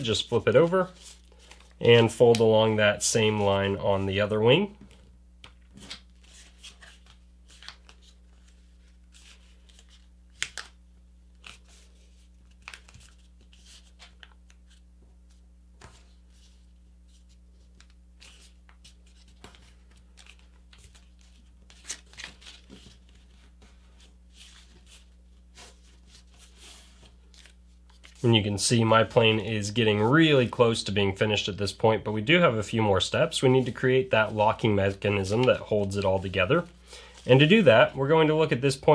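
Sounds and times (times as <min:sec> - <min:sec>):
paper crackling and rustling: 0:15.8 - 0:28.4.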